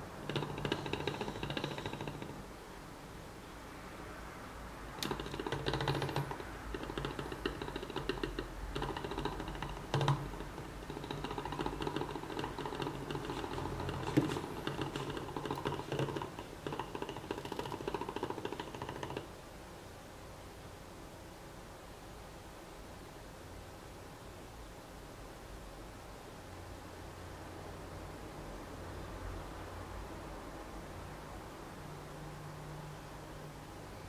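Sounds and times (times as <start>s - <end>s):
engine pistons clicking rattle: 0.2s - 2.4s, 5.0s - 19.3s.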